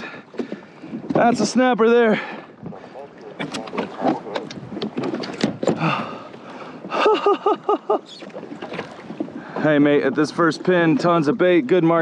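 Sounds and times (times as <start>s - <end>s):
fish flapping in a kayak: 2.6s - 6.3s.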